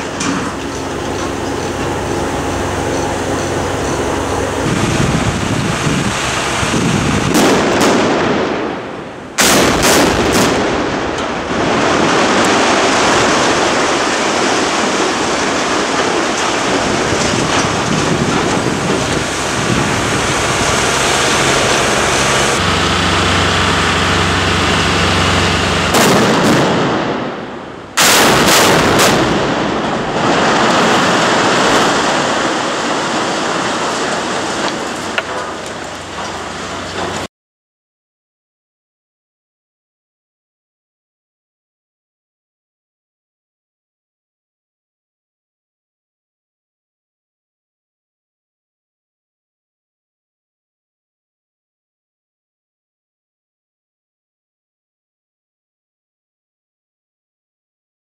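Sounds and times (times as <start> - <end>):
explosive blasts: 0.0 - 37.3
rumbling crash of collapsing steel: 0.0 - 37.3.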